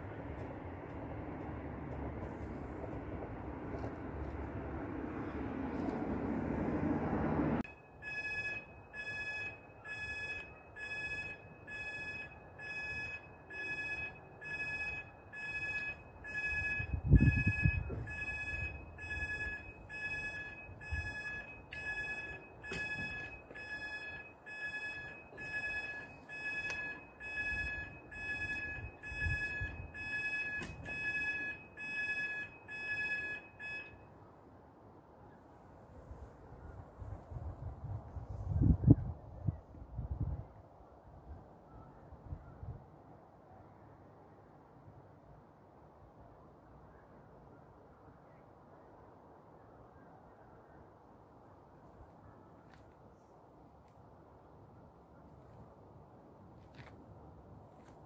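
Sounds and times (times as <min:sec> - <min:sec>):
passing train: 0:00.0 - 0:41.9
level crossing alarm beeping: 0:07.6 - 0:34.2.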